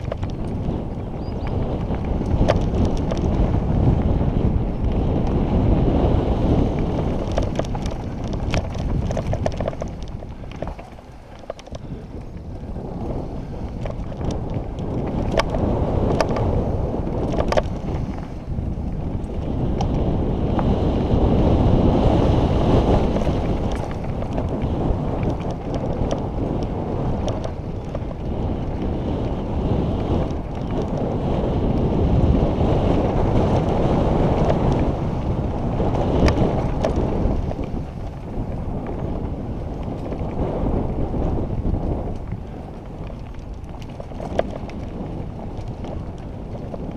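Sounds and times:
tyres rumbling on gravel: 0.0s - 46.9s
wind buffeting microphone: 0.0s - 46.9s
bike clattering over rocks: 6.7s - 12.4s, 22.9s - 26.6s.

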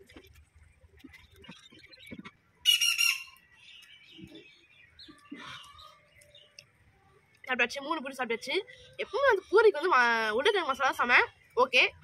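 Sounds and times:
bird harsh squawk: 1.8s - 3.5s.

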